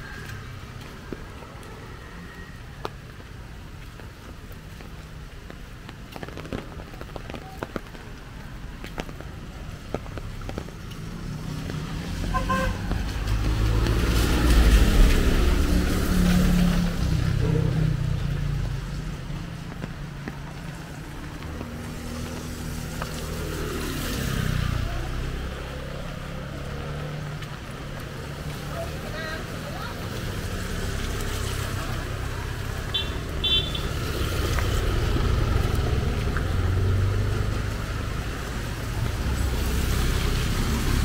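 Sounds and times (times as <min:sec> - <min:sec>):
vehicle passing on wet road: 0:00.0 - 0:41.0
car horn toot: 0:12.3 - 0:12.8, 0:32.9 - 0:33.8.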